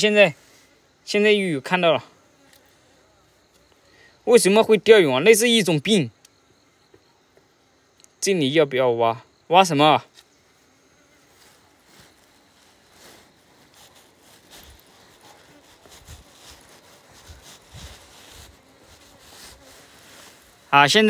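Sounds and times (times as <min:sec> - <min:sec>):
light hiss: 0:00.0 - 0:21.0.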